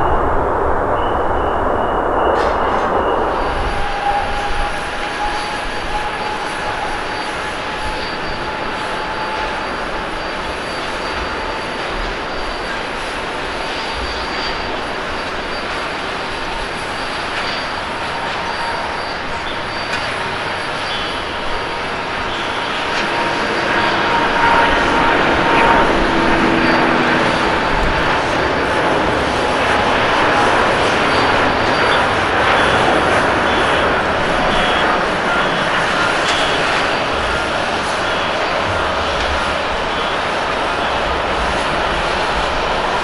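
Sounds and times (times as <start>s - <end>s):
jet engines at takeoff: 0.0s - 43.0s
thin steady whine: 0.0s - 43.0s.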